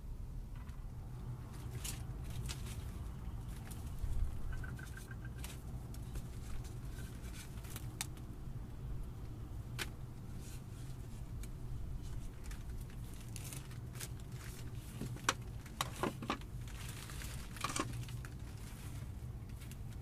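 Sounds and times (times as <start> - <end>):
baskets rustling and scraping: 12.0 - 20.0.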